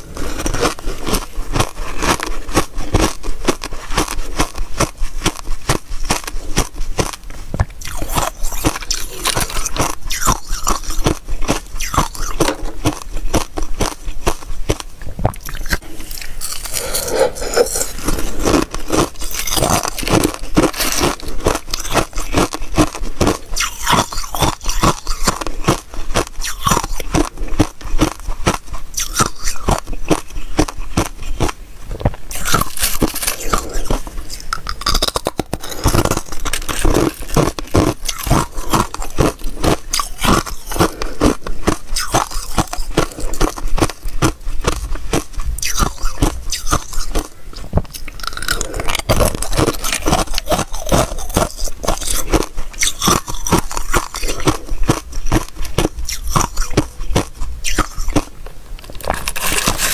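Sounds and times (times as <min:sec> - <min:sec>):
ice crunching while chewed: 0:00.0 - 0:59.9
ice shards scraping tray: 0:32.4 - 0:33.9, 0:59.0 - 0:59.9.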